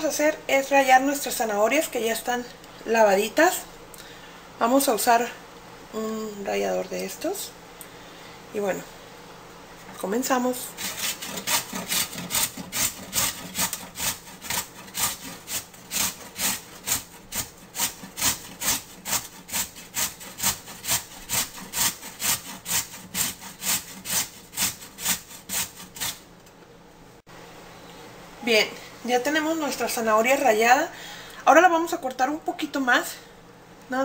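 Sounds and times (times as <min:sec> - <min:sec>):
carrot grated on metal grater: 0:10.6 - 0:26.2.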